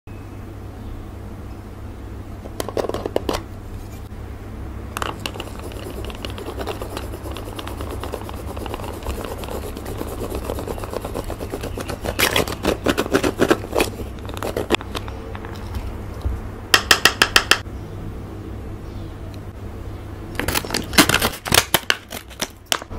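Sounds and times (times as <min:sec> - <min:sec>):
steady low hum: 0:00.1 - 0:16.9
powder being scraped and crushed: 0:05.0 - 0:15.0.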